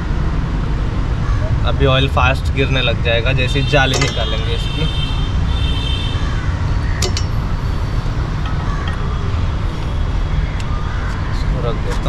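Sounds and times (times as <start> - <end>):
road traffic rumble: 0.0 - 12.0
pliers clinking on metal: 3.9 - 4.3, 7.0 - 7.4.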